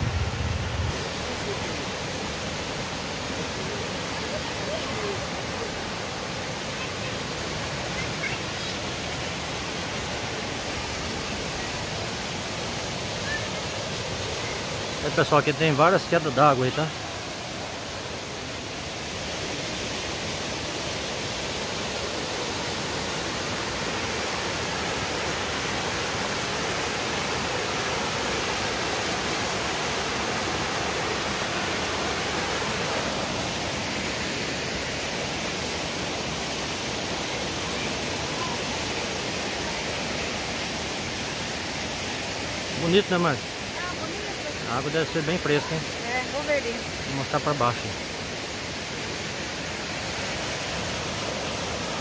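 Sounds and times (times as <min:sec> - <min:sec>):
waterfall rushing over rocks: 0:00.0 - 0:52.0.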